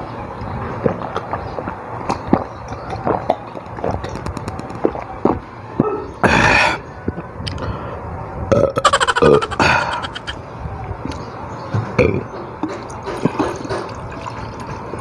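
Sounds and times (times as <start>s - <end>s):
swallowing: 8.5s - 10.4s
breathy rush: 8.9s - 10.4s.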